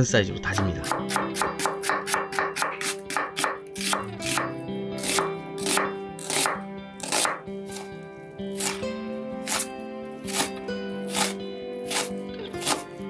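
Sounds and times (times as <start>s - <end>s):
knife chopping onion on wooden board: 0.6s - 8.8s, 9.4s - 12.9s.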